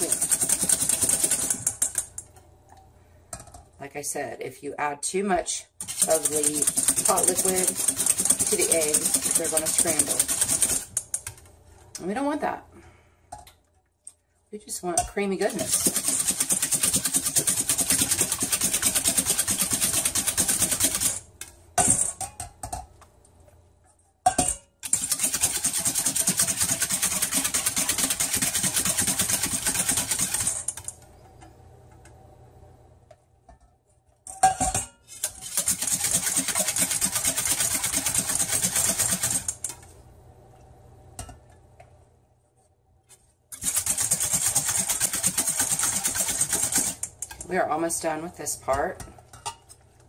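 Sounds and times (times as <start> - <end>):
whisk clattering in metal bowl: 0.0 - 2.1, 5.8 - 11.4, 15.1 - 21.2, 24.3 - 30.9, 34.3 - 39.8, 43.6 - 47.6.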